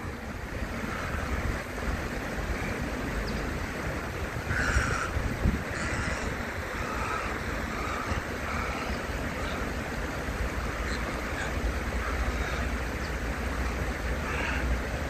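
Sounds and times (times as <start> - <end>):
wind on microphone: 0.0 - 9.4
stream running water: 0.0 - 15.0.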